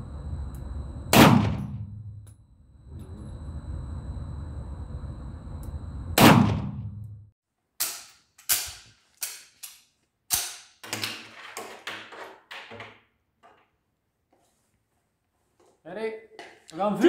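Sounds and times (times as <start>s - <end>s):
metallic clacks of pistol handling: 7.8s - 11.2s.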